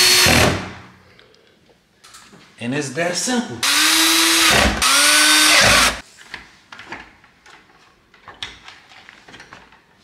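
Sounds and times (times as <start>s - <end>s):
cordless drill motor whine: 3.6s - 6.0s.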